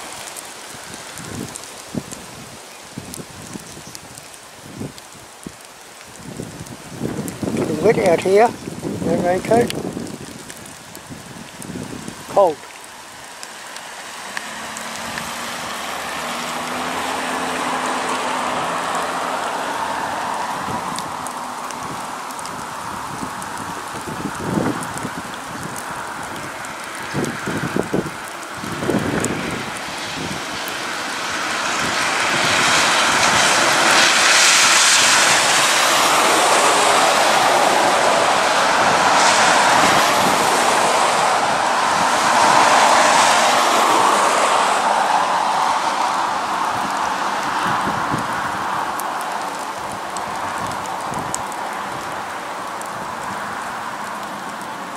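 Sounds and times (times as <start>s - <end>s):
wind at microphone: 0.0s - 54.7s
rain: 0.0s - 54.9s
tyre hiss on wet road: 0.0s - 54.9s.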